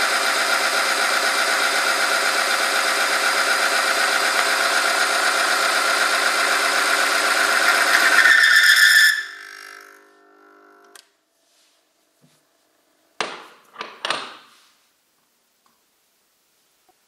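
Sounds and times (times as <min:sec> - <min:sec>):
electric motor winding down: 0:00.0 - 0:11.0
squeal of rubbing sample: 0:07.9 - 0:09.6
clattering knocks: 0:13.2 - 0:14.5.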